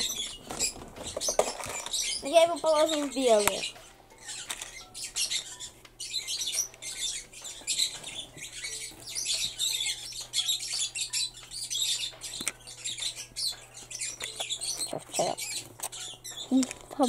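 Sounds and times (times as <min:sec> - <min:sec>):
plastic toys clicking and rattling: 0:00.0 - 0:05.3, 0:10.0 - 0:17.0.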